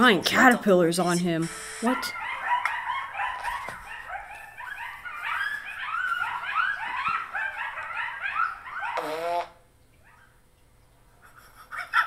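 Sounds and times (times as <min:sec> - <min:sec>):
dog-like animals yipping: 0:01.9 - 0:09.2, 0:10.0 - 0:10.4.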